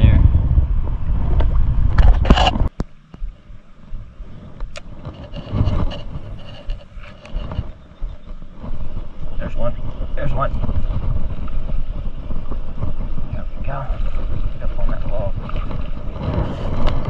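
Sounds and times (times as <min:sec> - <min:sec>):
microphone handling noise: 0:00.0 - 0:03.4, 0:04.0 - 0:17.0
wind buffeting microphone: 0:00.0 - 0:17.0
fishing rod clicks and rustles: 0:02.0 - 0:03.2, 0:04.5 - 0:13.2.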